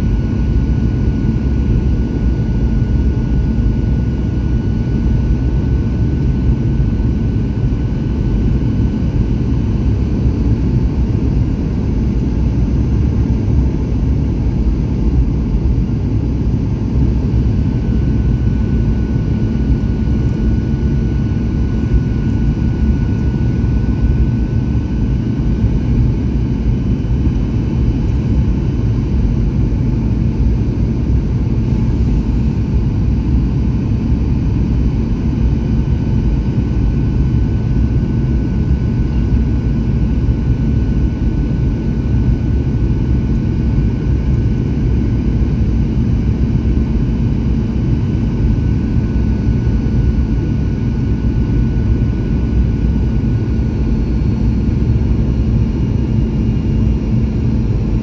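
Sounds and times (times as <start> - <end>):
aircraft engines and airflow rumble: 0.0 - 58.0
faint steady whine: 0.0 - 58.0.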